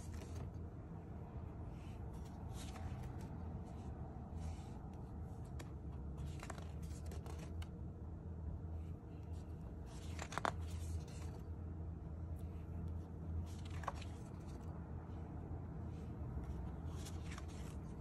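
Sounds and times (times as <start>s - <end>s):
paper pages rustling: 0.0s - 0.6s, 1.7s - 7.8s, 9.3s - 11.5s, 12.9s - 14.7s, 16.4s - 18.0s
low steady hum: 0.0s - 18.0s.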